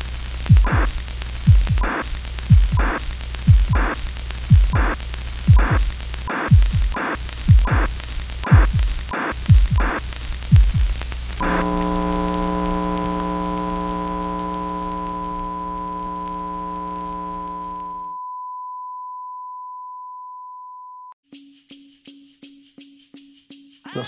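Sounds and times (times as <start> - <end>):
tv static: 0.0 - 18.1
low glitchy thuds: 0.5 - 1.9, 2.5 - 3.9, 4.5 - 5.9, 6.5 - 7.9, 8.5 - 9.9, 10.5 - 11.0
electronic drone of held tones: 11.4 - 18.2.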